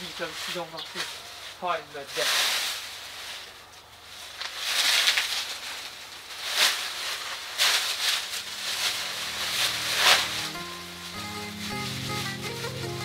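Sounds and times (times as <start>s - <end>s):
dry leaves rustling and crackling: 0.0s - 13.0s
soft background music: 8.4s - 13.0s.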